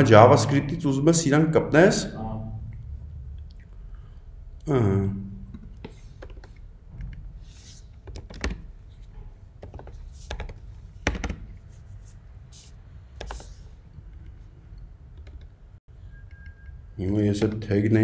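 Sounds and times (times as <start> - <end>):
steady low hum: 0.0 - 17.7
computer keyboard keystrokes: 15.2 - 15.5.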